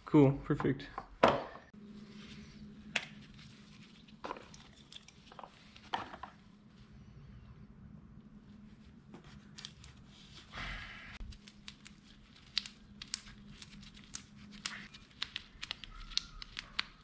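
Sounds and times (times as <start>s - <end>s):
putty crackling in gloved hands: 11.2s - 17.0s.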